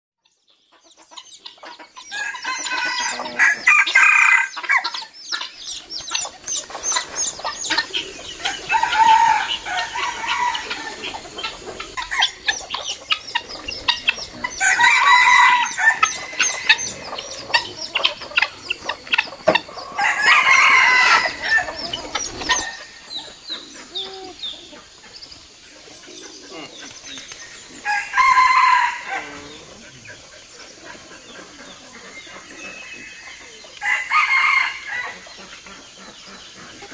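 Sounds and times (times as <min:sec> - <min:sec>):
fowl clucking and cackling: 0:00.5 - 0:36.9
rooster crowing: 0:02.1 - 0:04.9, 0:08.4 - 0:12.4, 0:14.5 - 0:17.6, 0:19.8 - 0:23.0, 0:27.8 - 0:29.8, 0:33.8 - 0:35.2.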